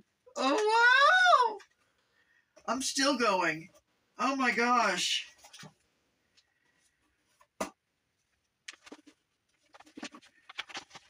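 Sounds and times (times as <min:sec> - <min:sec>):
cardboard and paper rustling: 0:08.6 - 0:11.0.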